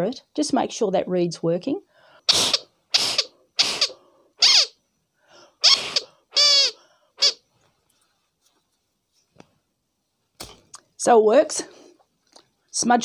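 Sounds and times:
breathy blasts through doll crier: 2.2 - 7.4
reed cry falling in pitch: 2.5 - 4.8, 5.6 - 7.4.

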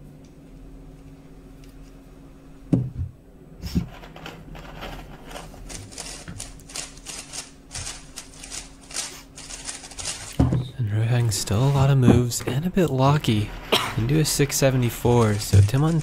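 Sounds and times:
dull thumps: 2.7 - 3.2.

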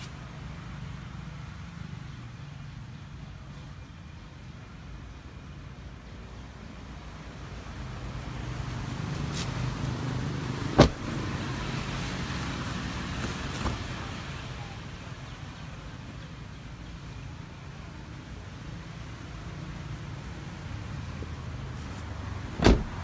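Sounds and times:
car door shutting: 10.8 - 11.0, 22.6 - 23.0.

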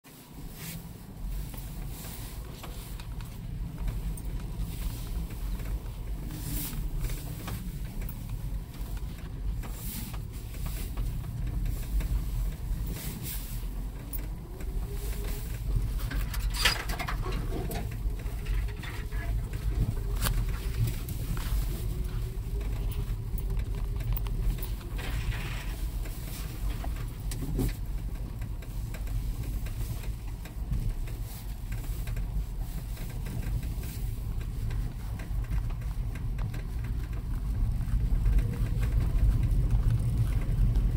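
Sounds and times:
car engine and road rumble: 0.0 - 40.9
knocks and rattles: 13.9 - 21.6.

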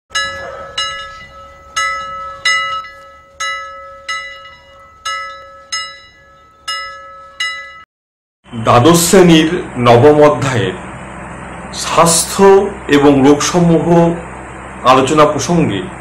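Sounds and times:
steady held tone: 0.1 - 7.9
bell-like chime notes: 0.2 - 7.9.

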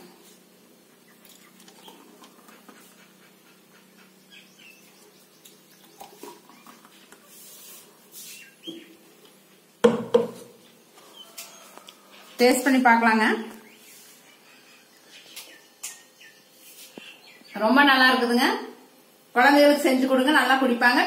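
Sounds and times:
loud knock: 9.8 - 10.4.

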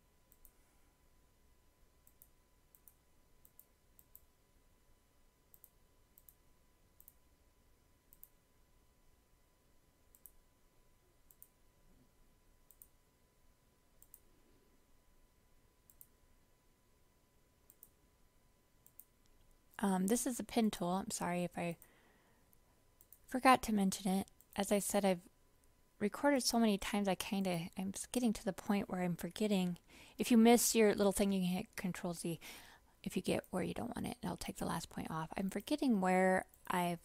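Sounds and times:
faint steady hum: 0.0 - 37.0
computer mouse clicks: 0.3 - 0.6, 2.0 - 4.3, 5.5 - 6.4, 7.0 - 7.2, 8.1 - 8.4, 10.1 - 10.4, 11.2 - 11.6, 12.7 - 13.0, 14.0 - 14.3, 15.9 - 16.2, 17.7 - 18.0, 18.8 - 19.6, 23.0 - 23.3.

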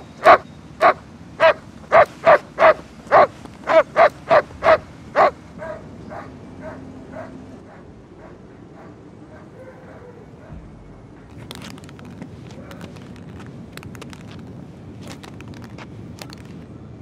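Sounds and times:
dog barking: 0.2 - 10.6.

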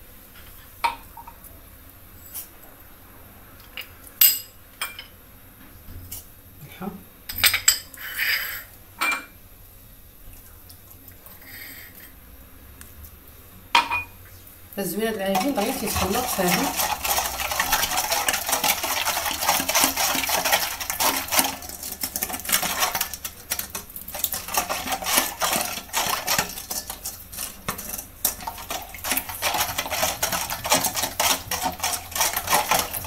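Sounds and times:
whisk scraping metal bowl: 15.0 - 33.0
liquid sloshing: 15.2 - 33.0.

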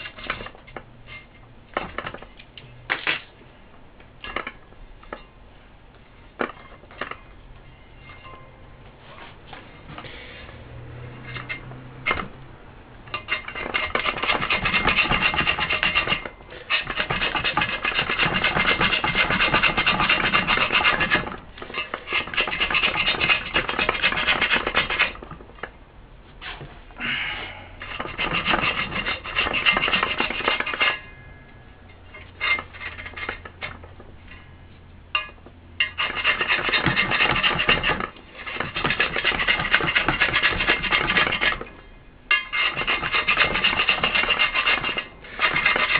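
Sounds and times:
metal scraper scratching: 0.0 - 2.3, 11.2 - 12.3, 13.1 - 25.4, 27.8 - 31.2, 32.0 - 33.9, 35.2 - 45.9.

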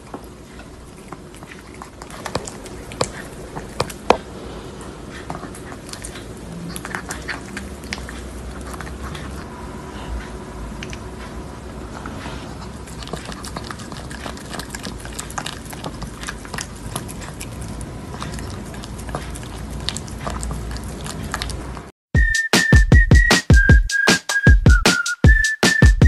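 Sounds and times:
dog crunching a treat: 0.0 - 9.4, 10.7 - 21.9
electronic music with whistling: 22.2 - 26.0.

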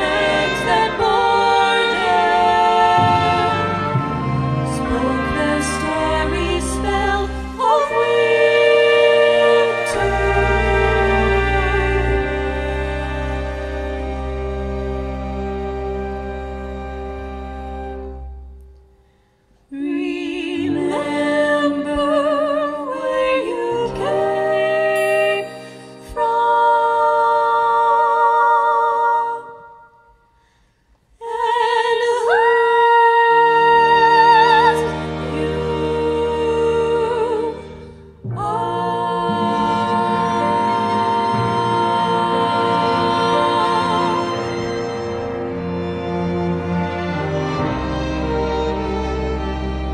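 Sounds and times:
women singing with vibrato: 0.0 - 14.2, 19.7 - 30.2, 31.2 - 45.8
low sustained notes: 0.0 - 18.9.

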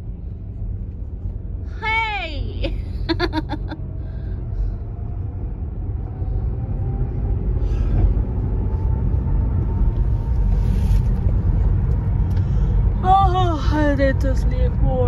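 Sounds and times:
road and engine rumble in car: 0.0 - 15.0.

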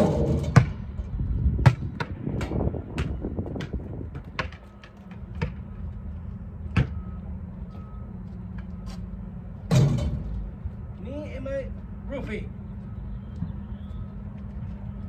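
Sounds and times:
basketball bouncing on asphalt: 0.0 - 7.1.

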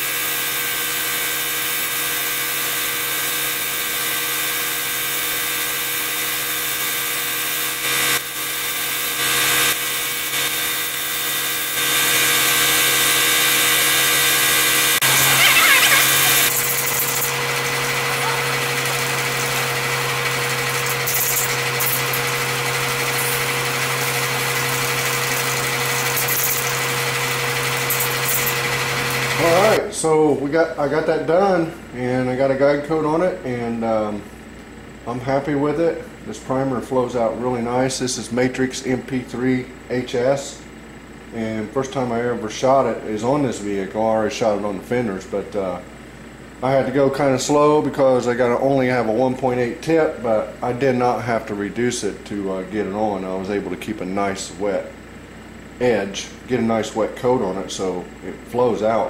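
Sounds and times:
air-supply motor whine: 0.0 - 59.0.

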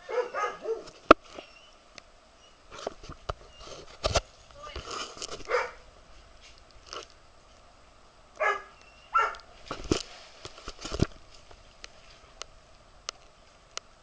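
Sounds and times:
dog barking: 0.0 - 0.9, 5.5 - 5.8, 8.4 - 9.4.

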